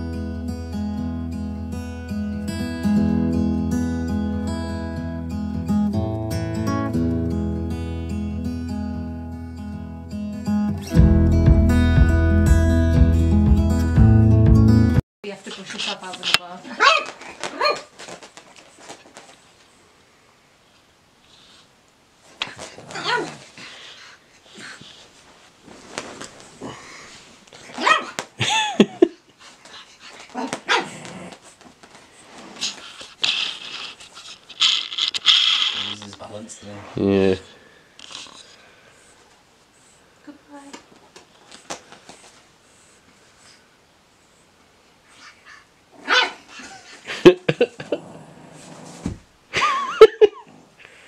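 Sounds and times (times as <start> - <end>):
dogs scuffling: 15.3 - 19.8, 24.7 - 28.3, 29.4 - 36.4
small dogs barking and yipping: 16.7 - 18.0, 22.9 - 23.4, 27.7 - 28.2, 30.3 - 31.1, 45.1 - 47.0
small dogs yapping: 16.7 - 18.0, 22.8 - 23.6, 27.6 - 28.2, 30.3 - 31.4, 45.1 - 47.0.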